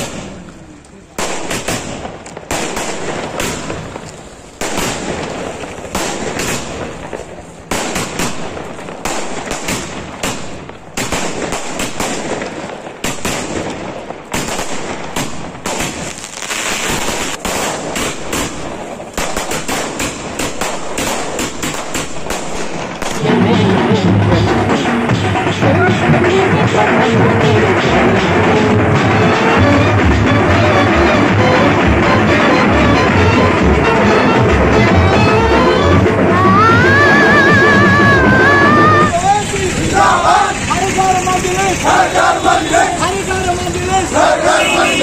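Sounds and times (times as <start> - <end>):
fireworks bangs and crackles: 0.0 - 45.0
loud music with heavy beat: 23.1 - 39.2.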